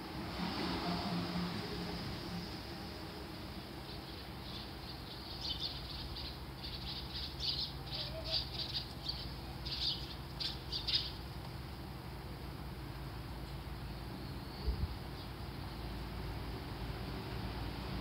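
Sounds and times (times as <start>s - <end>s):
birds chirping: 3.6s - 11.4s.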